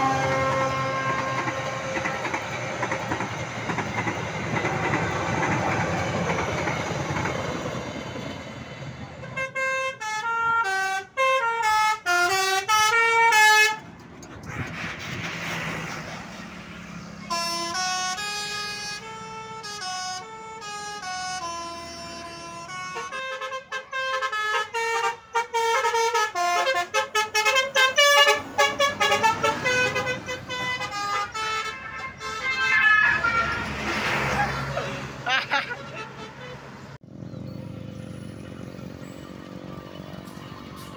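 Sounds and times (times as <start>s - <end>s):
bus horns playing melodic tunes: 0.0s - 2.3s, 9.2s - 13.9s, 17.2s - 37.0s
bus driving past: 13.6s - 23.4s, 27.6s - 40.9s.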